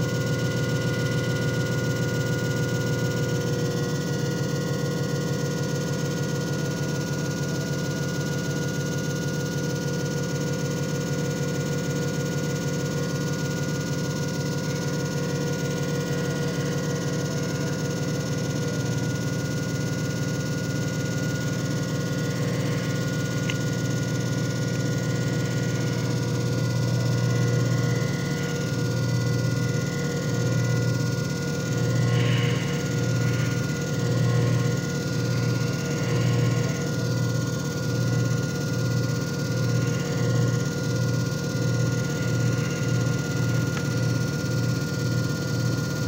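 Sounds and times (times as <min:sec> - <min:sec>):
machine motor hum and whir: 0:00.0 - 0:46.0
constant tones: 0:22.2 - 0:44.2.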